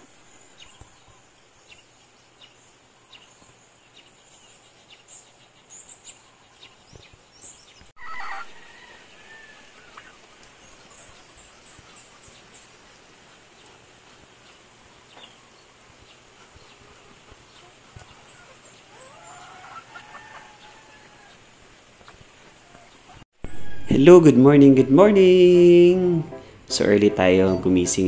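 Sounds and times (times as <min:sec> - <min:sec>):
small birds chirping: 0:00.0 - 0:23.2, 0:24.3 - 0:28.0
chickens clucking: 0:08.0 - 0:24.1.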